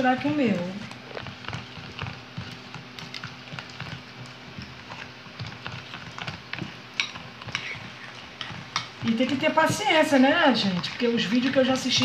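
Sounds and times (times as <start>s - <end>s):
slime squelching: 0.0s - 12.0s
spoon clinking and scraping bowl: 4.6s - 12.0s.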